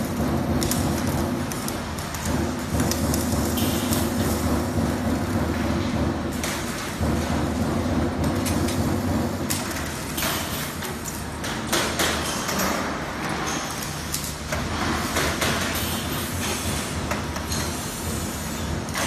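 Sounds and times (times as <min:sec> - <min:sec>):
steady machine hum: 0:00.0 - 0:12.1.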